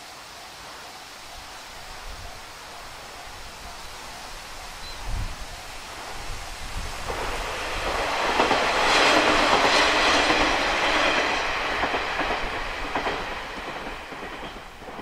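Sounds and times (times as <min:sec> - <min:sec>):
diesel train passing: 0:00.4 - 0:15.0
wheels clattering over rail joints: 0:06.0 - 0:15.0.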